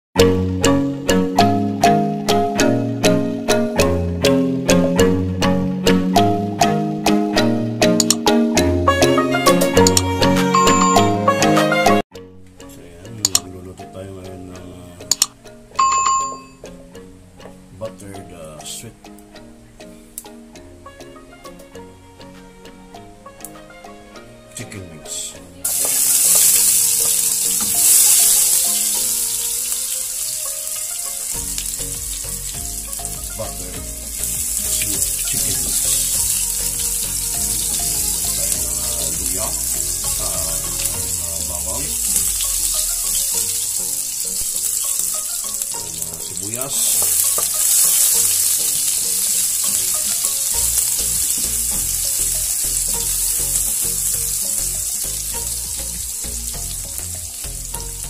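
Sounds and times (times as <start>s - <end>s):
garlic sizzling in hot oil: 25.6s - 58.0s.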